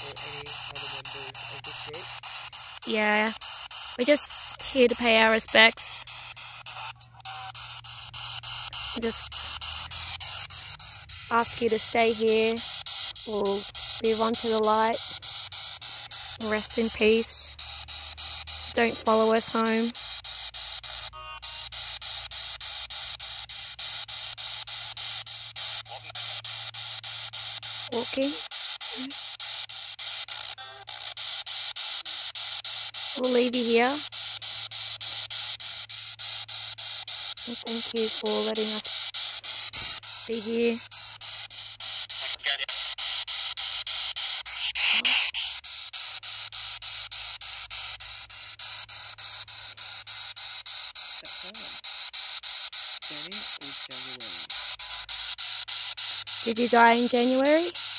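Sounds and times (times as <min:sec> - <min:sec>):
snatch of radio broadcast: 0:00.0 - 0:02.1, 0:42.1 - 0:43.0, 0:44.5 - 0:45.6
chopped radio static hiss: 0:00.0 - 0:57.9.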